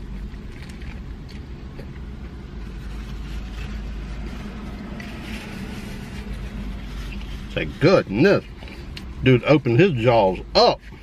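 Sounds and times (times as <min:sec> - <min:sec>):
person chewing: 0:00.0 - 0:04.0
car interior engine hum: 0:00.0 - 0:11.0
paper napkin rustling: 0:02.4 - 0:11.0.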